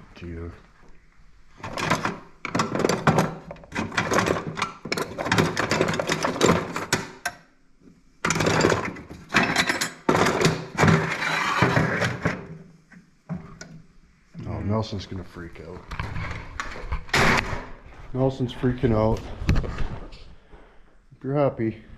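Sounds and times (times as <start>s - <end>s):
metal tools clattering: 1.7s - 7.0s, 8.2s - 11.9s.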